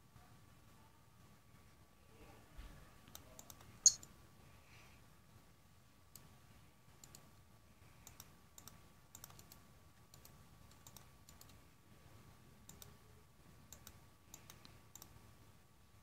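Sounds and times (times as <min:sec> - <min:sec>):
faint high hum: 0:00.0 - 0:16.0
computer mouse clicking: 0:03.0 - 0:04.1, 0:06.1 - 0:06.3, 0:07.0 - 0:07.3, 0:08.0 - 0:11.6, 0:12.7 - 0:13.0, 0:13.7 - 0:15.2.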